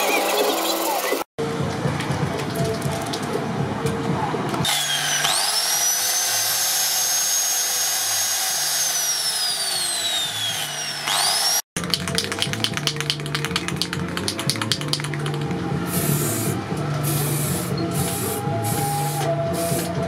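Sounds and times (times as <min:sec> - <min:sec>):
angle grinder whine: 0:04.6 - 0:11.7.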